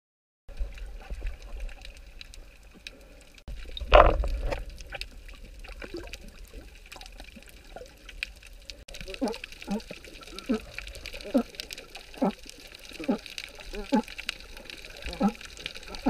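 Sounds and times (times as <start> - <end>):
faint underwater clicks and crackles: 0.5 - 16.0
low underwater rumble: 0.5 - 16.0
burst of water noise: 3.5 - 16.0.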